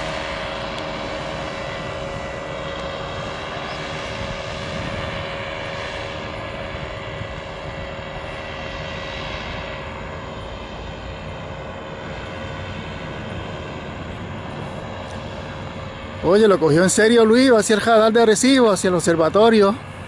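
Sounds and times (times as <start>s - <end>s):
paramotor engine droning: 0.0s - 20.0s.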